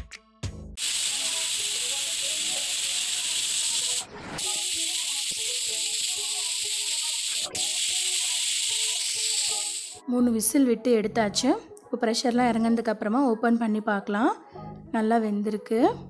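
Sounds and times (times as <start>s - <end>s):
pressure cooker whistling: 0.8s - 10.0s.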